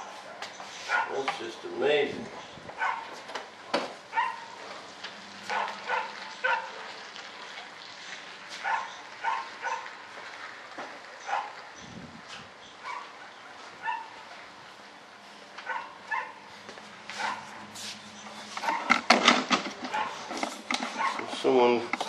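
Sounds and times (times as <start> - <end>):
dog barking: 0.2 - 1.2, 2.8 - 3.2, 4.1 - 4.6, 5.5 - 6.9, 8.6 - 9.9, 11.3 - 11.6, 12.8 - 14.2, 15.6 - 16.5, 17.2 - 17.7, 18.6 - 19.0, 19.9 - 21.3.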